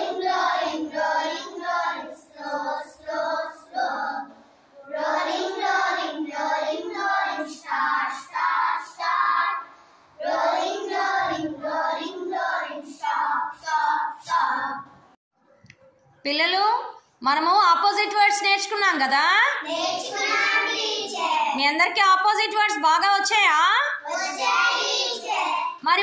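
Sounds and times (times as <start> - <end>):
children singing in unison: 0.0 - 14.9, 19.7 - 21.4, 24.0 - 25.7.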